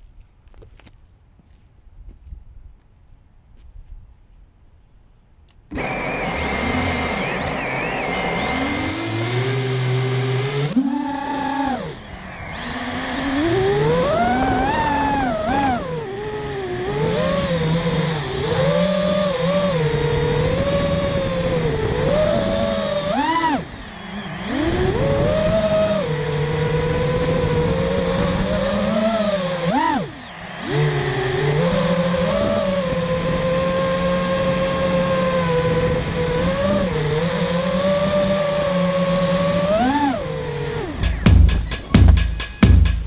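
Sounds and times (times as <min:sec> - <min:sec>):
quadcopter motors whining: 0:05.7 - 0:42.7.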